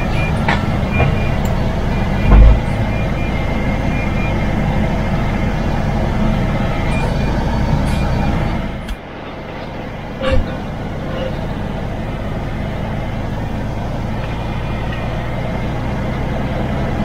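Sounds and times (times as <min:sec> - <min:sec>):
truck engine and rolling noise: 0:00.0 - 0:17.0
loud low thump: 0:02.2 - 0:02.8.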